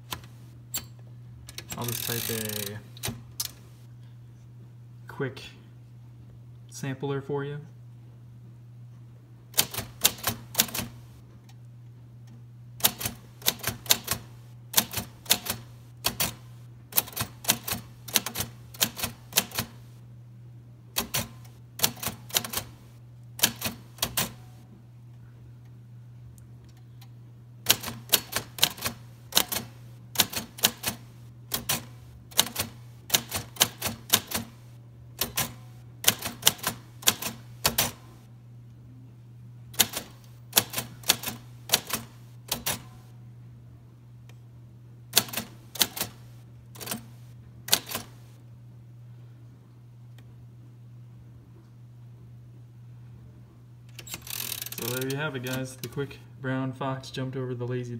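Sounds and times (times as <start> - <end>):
manual typewriter clacking: 1.5 - 3.6, 9.6 - 11.0, 12.8 - 19.8, 21.0 - 22.8, 23.4 - 24.4, 27.7 - 38.1, 39.8 - 42.9, 45.2 - 48.3, 53.9 - 56.0.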